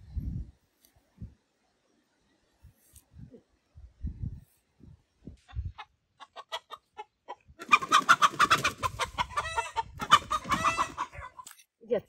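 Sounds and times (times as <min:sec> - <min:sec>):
chickens clucking: 0:05.2 - 0:11.6.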